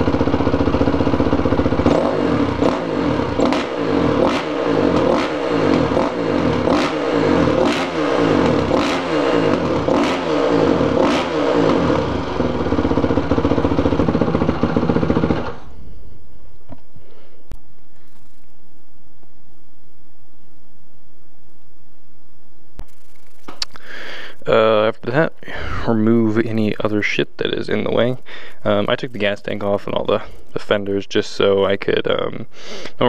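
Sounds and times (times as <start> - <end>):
dirt bike engine revving and idling: 0.0 - 16.0.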